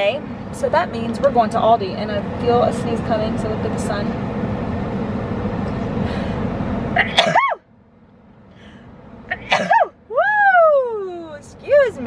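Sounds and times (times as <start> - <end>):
woman sneezing: 7.0 - 7.6, 9.3 - 9.9.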